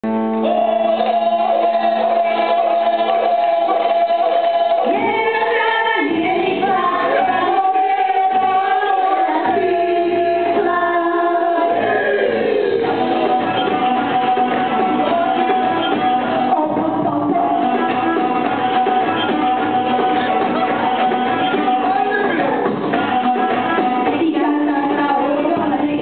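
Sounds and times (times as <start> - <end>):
choir singing held notes: 0.4 - 16.8.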